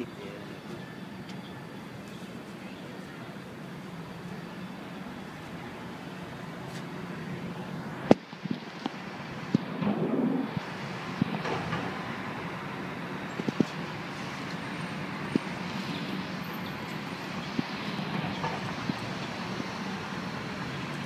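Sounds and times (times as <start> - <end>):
traffic hum: 0.0 - 21.0.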